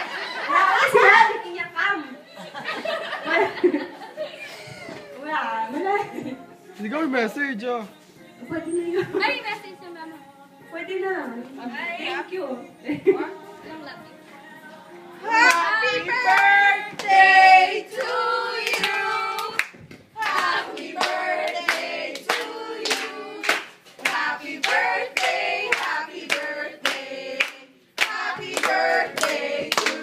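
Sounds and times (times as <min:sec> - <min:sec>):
voices singing: 0:12.2 - 0:30.0.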